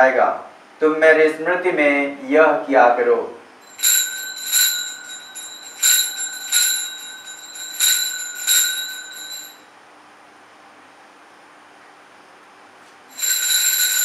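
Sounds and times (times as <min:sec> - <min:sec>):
altar bell ringing: 0:03.6 - 0:09.7, 0:13.1 - 0:14.0.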